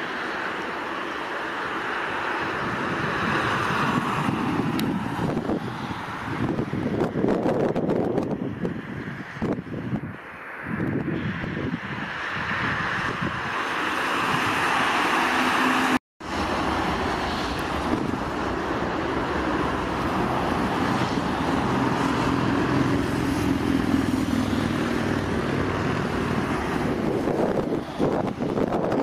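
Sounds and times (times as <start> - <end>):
jet engines at takeoff thrust: 0.0 - 29.0.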